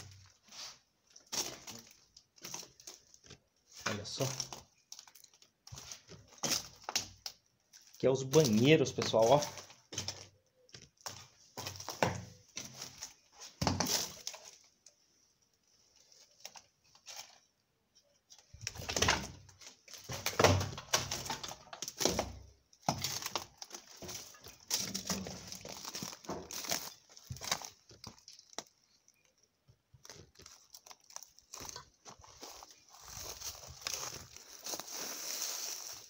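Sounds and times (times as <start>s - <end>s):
footsteps crunching through dry leaves: 23.0s - 28.1s, 30.2s - 36.0s.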